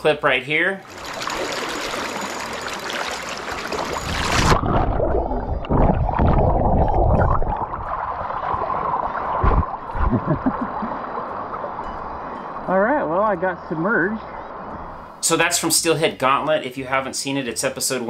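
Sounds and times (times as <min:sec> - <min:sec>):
river water rushing: 0:00.8 - 0:04.6
muffled underwater thumps: 0:04.1 - 0:08.6, 0:09.3 - 0:10.8.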